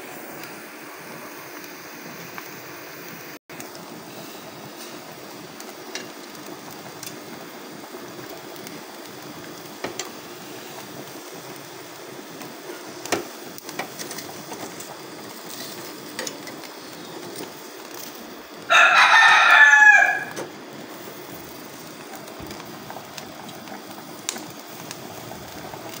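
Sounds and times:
gas burner flame hissing: 0.0 - 26.0
metal tongs clicking on grill: 15.5 - 16.7.

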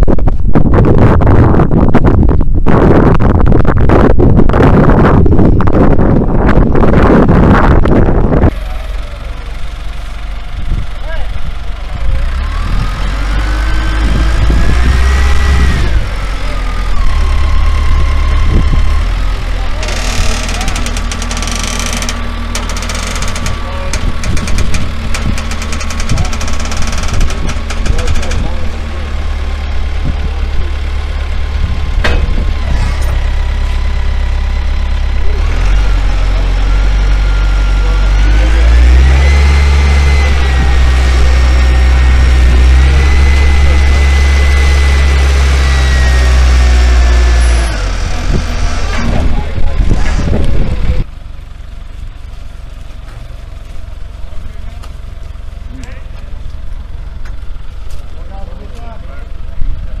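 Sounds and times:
telehandler engine running: 0.8 - 60.0
whine climbing in pitch: 11.8 - 51.1.

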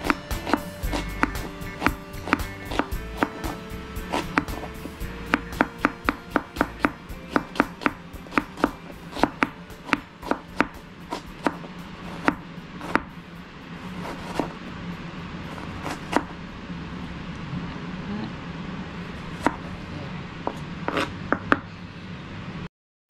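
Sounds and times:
knife chopping on cutting board: 0.1 - 13.1, 14.1 - 14.5.

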